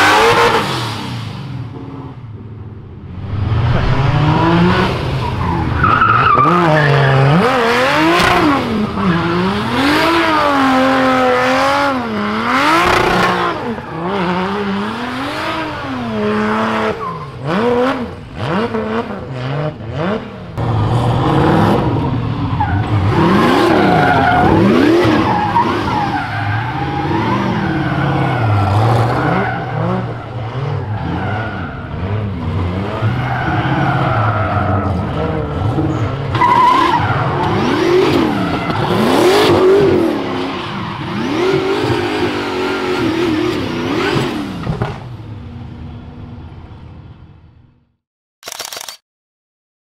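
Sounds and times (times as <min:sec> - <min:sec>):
car engines revving: 0:00.0 - 0:46.8
tyres squealing on tarmac: 0:36.0 - 0:39.0.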